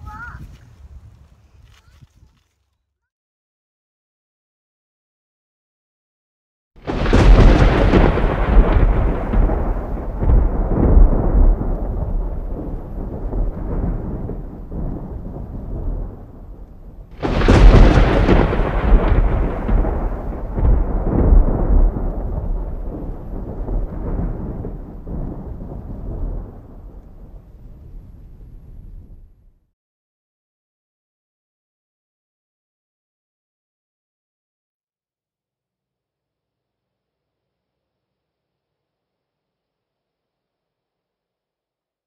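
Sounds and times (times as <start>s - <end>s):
thunder crack and rumble: 6.8s - 29.6s.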